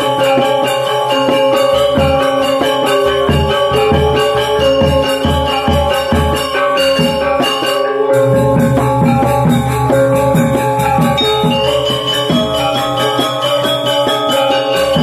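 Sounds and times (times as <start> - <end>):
metallophones and gongs ringing: 0.0 - 15.0
drum strokes: 1.9 - 15.0
deep held gong tone: 8.2 - 12.0.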